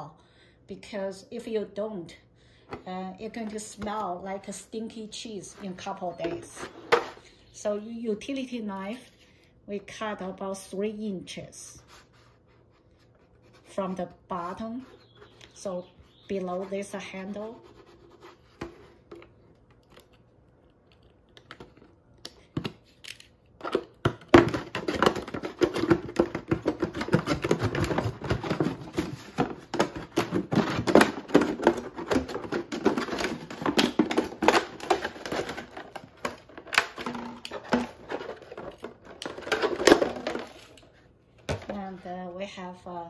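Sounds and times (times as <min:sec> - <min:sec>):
plastic jug crinkling: 0:23.6 - 0:42.0.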